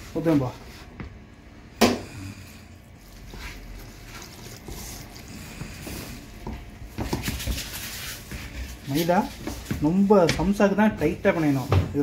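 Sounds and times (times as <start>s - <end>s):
hand squishing wet dough: 2.5s - 12.0s.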